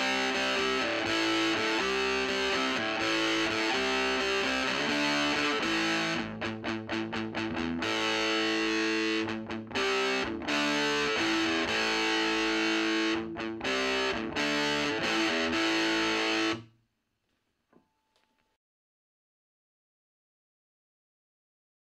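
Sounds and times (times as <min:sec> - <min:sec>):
distorted electric guitar chords: 0:00.0 - 0:16.7.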